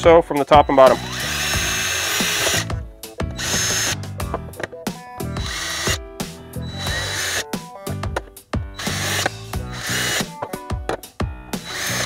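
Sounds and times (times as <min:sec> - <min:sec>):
background music: 0:00.0 - 0:12.0
impact driver drilling plastic pipe: 0:00.6 - 0:04.1, 0:05.4 - 0:06.0, 0:06.7 - 0:07.4, 0:08.8 - 0:10.4, 0:11.6 - 0:12.0.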